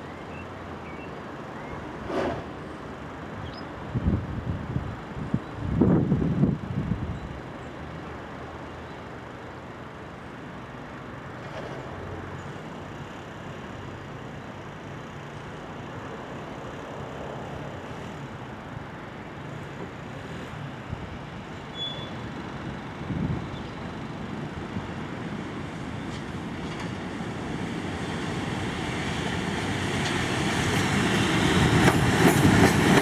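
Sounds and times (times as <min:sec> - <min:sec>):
train wheels rumbling: 0:22.2 - 0:33.0.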